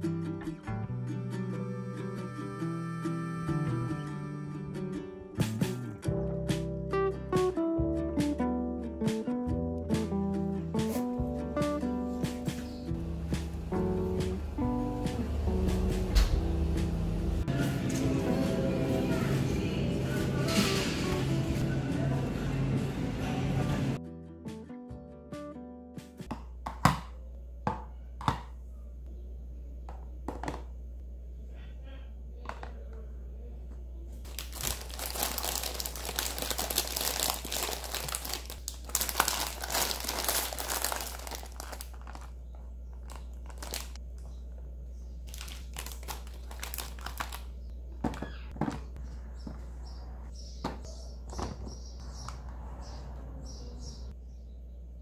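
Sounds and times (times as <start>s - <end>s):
snack packaging crinkling: 34.3s - 44.0s, 45.2s - 47.6s.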